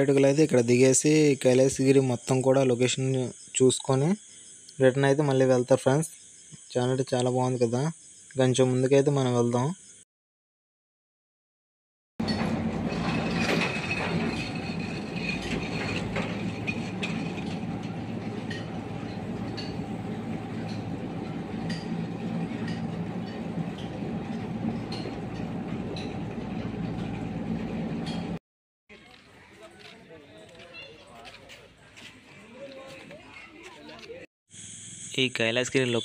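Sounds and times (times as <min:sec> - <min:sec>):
machinery humming: 0:12.2 - 0:28.4.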